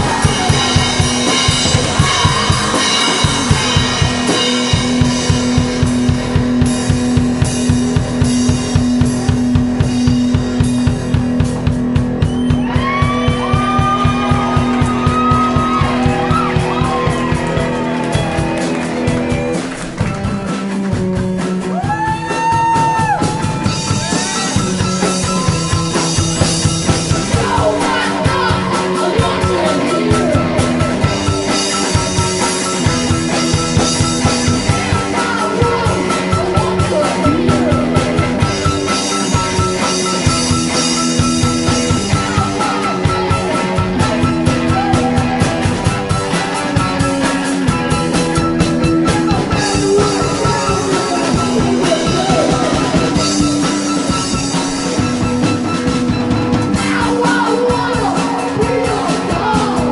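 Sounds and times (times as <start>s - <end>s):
sliding bending high notes: 0.0s - 5.6s
drum kit beat: 0.0s - 59.9s
electric guitar: 0.0s - 59.9s
keyboard: 0.0s - 59.9s.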